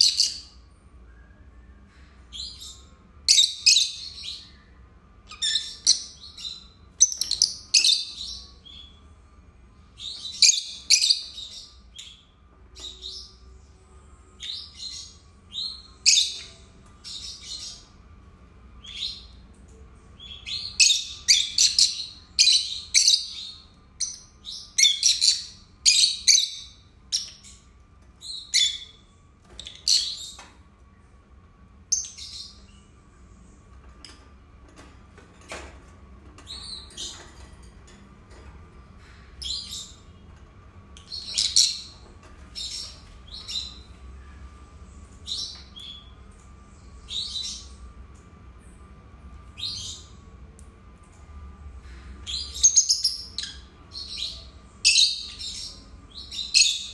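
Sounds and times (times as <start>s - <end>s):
lovebirds chirping: 1.8s - 9.2s, 20.2s - 30.6s, 39.0s - 44.4s, 51.8s - 56.9s.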